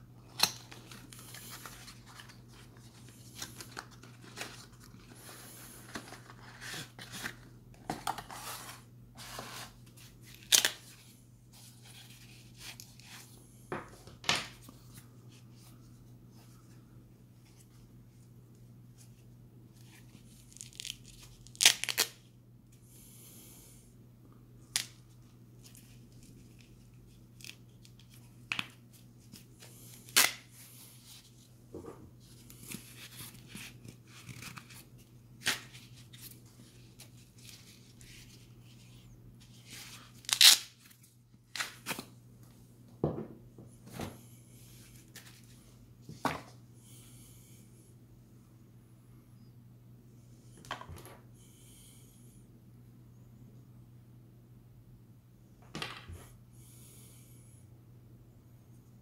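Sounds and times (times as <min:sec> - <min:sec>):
nylon ripping: 0:20.5 - 0:22.1, 0:40.2 - 0:40.7.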